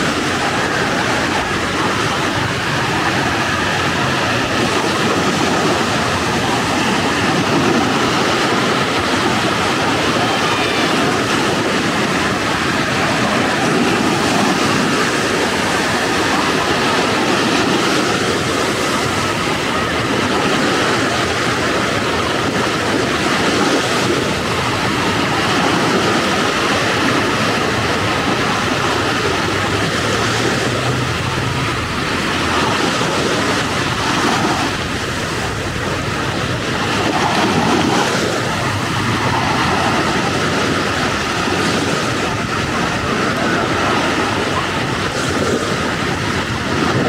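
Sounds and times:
ocean surf breaking on beach: 0:00.0 - 0:47.0.

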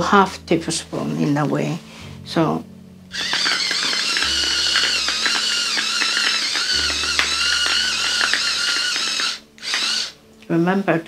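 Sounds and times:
salt crystals crackling: 0:03.1 - 0:08.6
electric salt grinder whirring: 0:03.1 - 0:10.2.

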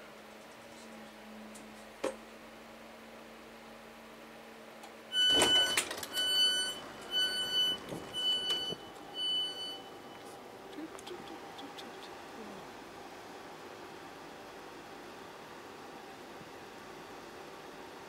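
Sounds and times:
low steady carriage hum: 0:00.0 - 0:18.0
door warning beeps: 0:05.1 - 0:10.3.

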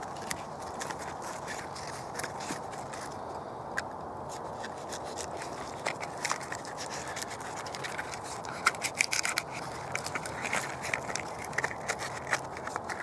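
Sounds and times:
knife scraping bark off log: 0:04.3 - 0:13.0.

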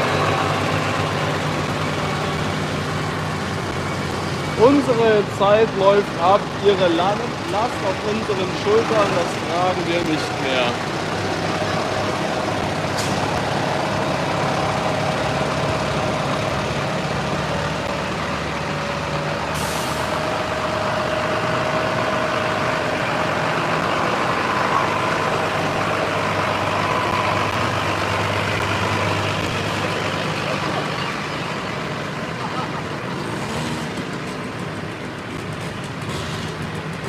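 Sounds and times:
tractor engines passing: 0:00.0 - 0:37.0.

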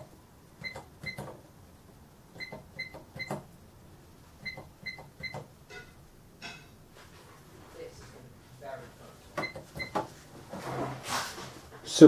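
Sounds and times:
cash register key beeps: 0:00.6 - 0:01.3, 0:02.4 - 0:03.4, 0:04.4 - 0:05.5, 0:09.4 - 0:10.1.

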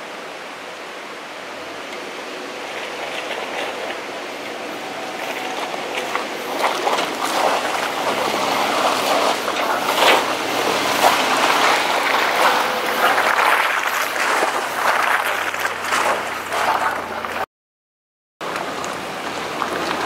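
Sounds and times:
tyres splashing through mud: 0:01.6 - 0:17.5, 0:18.4 - 0:20.0
tyres crunching over rock: 0:03.1 - 0:17.4.

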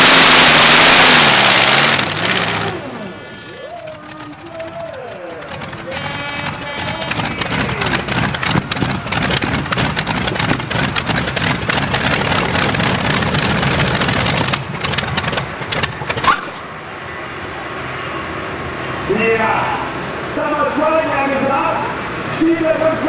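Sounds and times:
aircraft engine crackling exhaust: 0:00.0 - 0:16.8.

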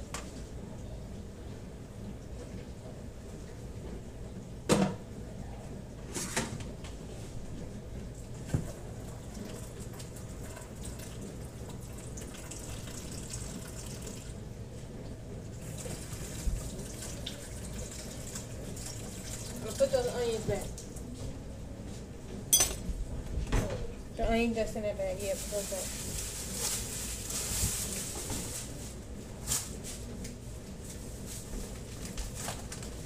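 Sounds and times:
dishes clattering: 0:22.5 - 0:22.9.

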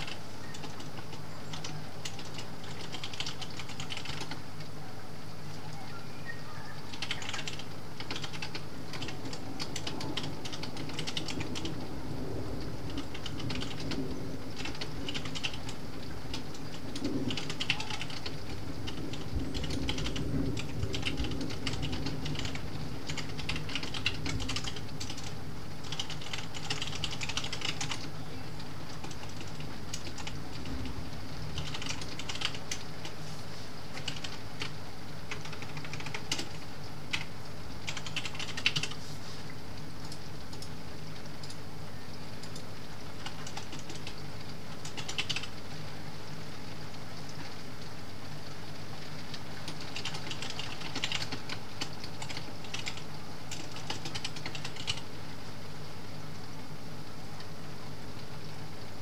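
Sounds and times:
computer keyboard typing: 0:00.0 - 0:04.4, 0:05.7 - 0:12.0, 0:12.6 - 0:33.2, 0:33.9 - 0:39.0, 0:40.0 - 0:41.6, 0:42.4 - 0:45.6, 0:49.3 - 0:55.1
low background noise: 0:00.0 - 0:59.0.

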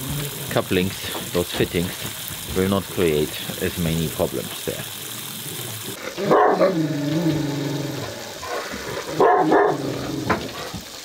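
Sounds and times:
dog growling: 0:00.0 - 0:00.6, 0:05.3 - 0:10.8
water spraying from hose: 0:00.0 - 0:11.0
dog barking: 0:06.2 - 0:06.8, 0:09.1 - 0:09.8.

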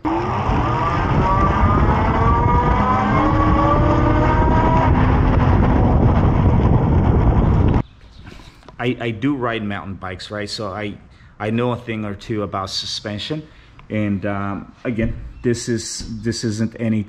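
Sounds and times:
electric motor whining: 0:00.0 - 0:07.8
wind rumble on microphone: 0:00.0 - 0:07.8.

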